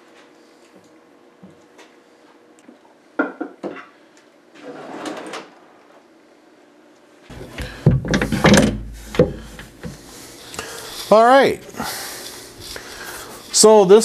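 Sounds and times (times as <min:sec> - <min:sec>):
drawer sliding shut: 0:07.3 - 0:10.0
cabinet door knocks and clicks: 0:07.5 - 0:09.5.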